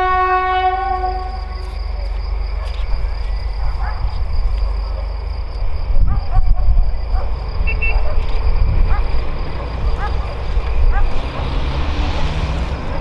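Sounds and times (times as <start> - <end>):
steady low rumble: 1.2 - 11.2.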